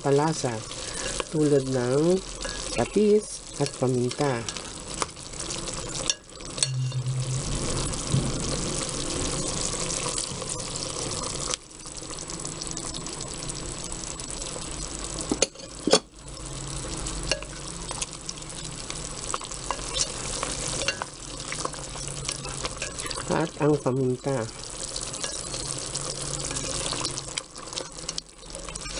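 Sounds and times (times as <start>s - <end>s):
chicken sizzling in pot: 0.0s - 28.9s
spoon stirring and scraping: 5.9s - 7.2s, 19.7s - 23.3s, 25.2s - 25.7s, 26.4s - 27.2s.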